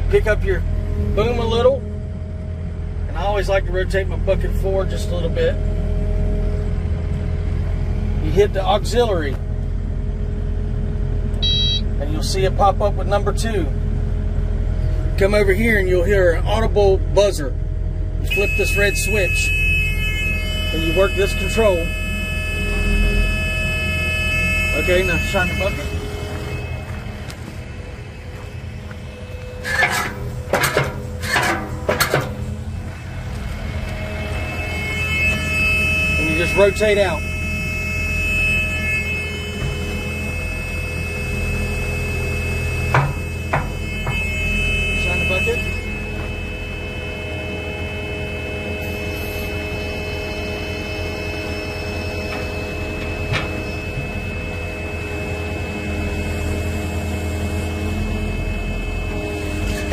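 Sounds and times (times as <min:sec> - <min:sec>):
excavator diesel engine running: 0:00.0 - 0:59.9
high-pitched tones: 0:11.4 - 0:12.0, 0:18.2 - 0:59.9
metallic clanks and scrapes: 0:29.5 - 0:32.6.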